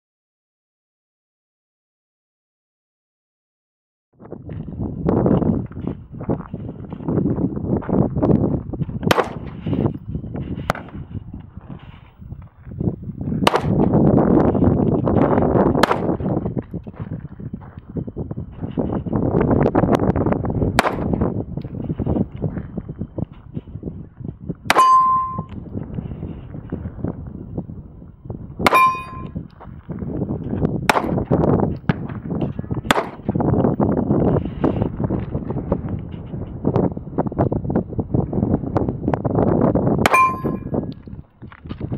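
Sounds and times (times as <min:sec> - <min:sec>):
wind rumbling on microphone: 0:04.2 - 0:41.9
pistol shots: 0:09.1 - 0:09.4, 0:13.5 - 0:13.8, 0:15.8 - 0:16.1, 0:20.8 - 0:21.1, 0:28.7 - 0:29.3, 0:30.9 - 0:31.2, 0:32.9 - 0:33.2
steel target clanging: 0:24.7 - 0:25.5, 0:28.7 - 0:29.3, 0:40.1 - 0:40.8.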